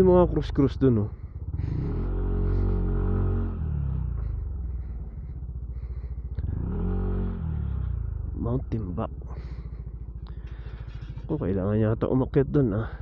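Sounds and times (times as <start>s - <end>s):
scooter engine running: 0.0s - 11.7s.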